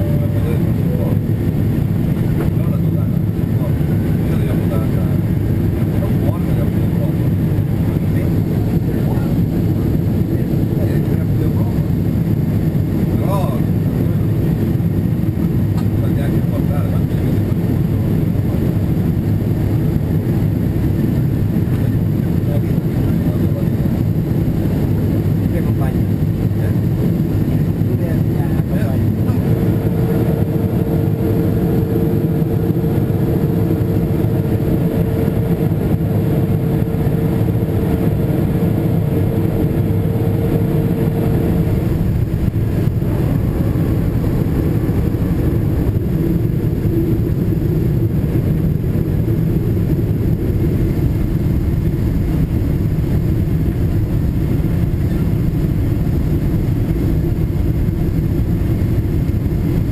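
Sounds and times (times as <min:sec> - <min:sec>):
aircraft engines and airflow rumble: 0:00.0 - 0:59.9
thin steady hum: 0:26.6 - 0:59.9.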